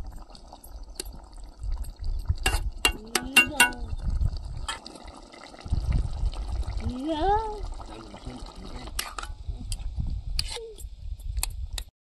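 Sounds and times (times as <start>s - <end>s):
cooking utensils clinking: 2.5s - 3.8s
low rumble: 5.6s - 11.8s.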